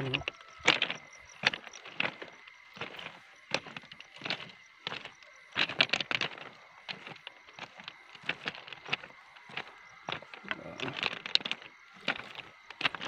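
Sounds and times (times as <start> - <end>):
footsteps on gravel: 0.0 - 13.0.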